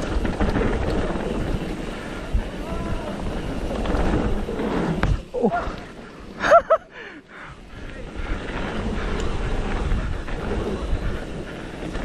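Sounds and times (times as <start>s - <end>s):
bike tyres rolling on dirt: 0.0s - 12.0s
wind on microphone: 7.6s - 12.0s.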